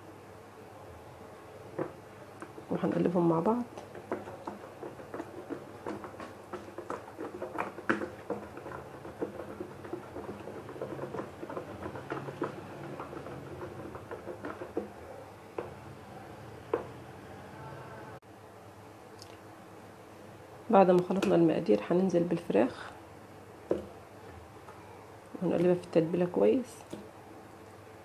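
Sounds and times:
whisk stirring thick mixture: 1.7 - 15.8.

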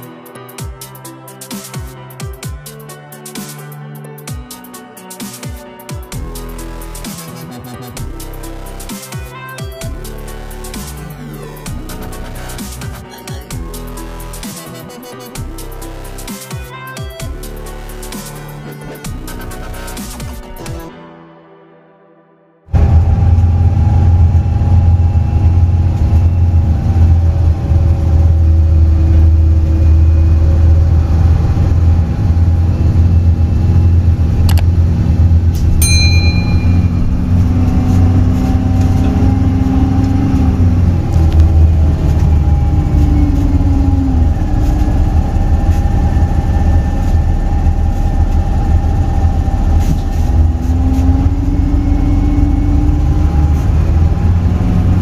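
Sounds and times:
bus engine rumble: 9.8 - 12.9, 22.8 - 55.0
brief ringing tone: 35.8 - 37.5.

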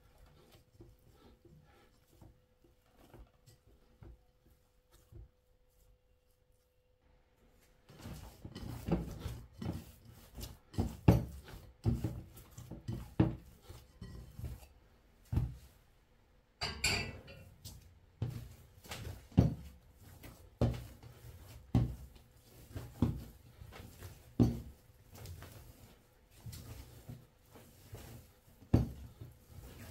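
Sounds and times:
dough kneading thuds: 7.6 - 15.9, 16.6 - 29.9.

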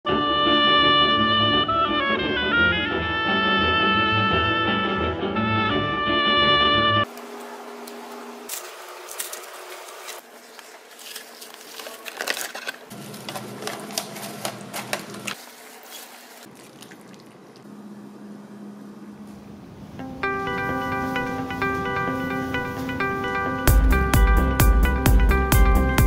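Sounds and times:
leaves picked off stems: 7.2 - 17.3
wet noodles clicking: 12.2 - 17.7.

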